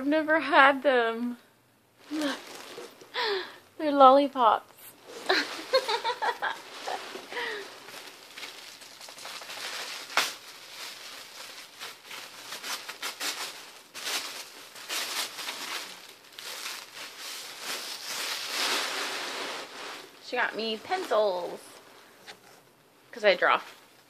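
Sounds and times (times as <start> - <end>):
paper wrapping crinkling: 2.0 - 3.5, 4.9 - 21.6.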